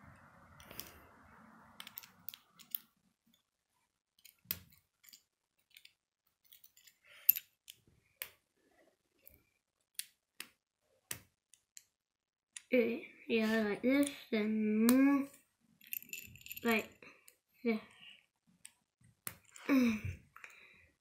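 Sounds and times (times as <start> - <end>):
plastic pieces clicking and snapping: 1.8 - 3.4, 4.2 - 8.4, 9.2 - 11.9.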